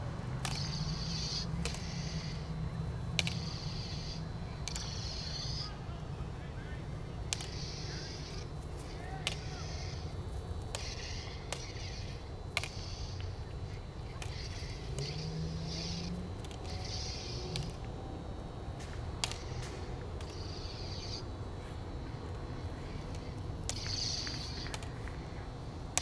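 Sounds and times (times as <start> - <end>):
steady low rumble: 0.0 - 26.0
stick clacking on plastic blade: 0.4 - 0.8, 1.4 - 2.0, 3.2 - 3.6, 4.6 - 5.0, 7.3 - 7.9, 14.2 - 17.8, 19.2 - 20.5, 23.1 - 24.9.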